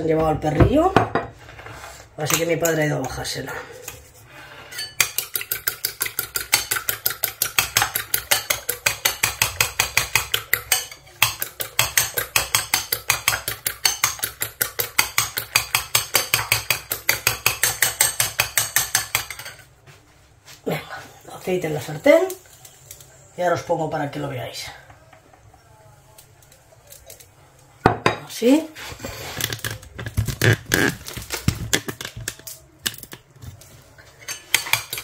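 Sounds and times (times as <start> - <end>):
whisk clicking against bowl: 5.0 - 19.4.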